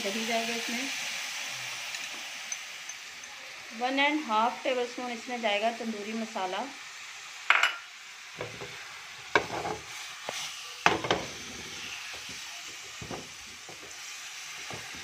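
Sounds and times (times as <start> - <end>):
chicken sizzling in oil: 0.0 - 15.0
spatula knocking and scraping pan: 8.4 - 9.8, 10.8 - 11.5, 13.0 - 14.0.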